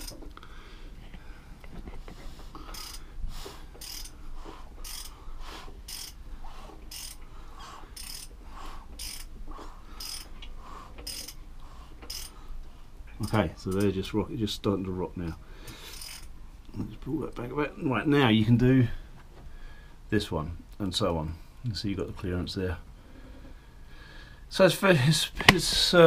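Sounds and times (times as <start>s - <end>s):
ratchet wrench clicking: 0.0s - 0.2s, 2.7s - 3.0s, 3.8s - 4.2s, 4.8s - 5.2s, 5.9s - 6.2s, 6.9s - 7.2s, 8.0s - 8.3s, 9.0s - 9.3s, 10.0s - 10.3s, 11.0s - 11.4s, 12.1s - 12.4s, 15.9s - 16.3s.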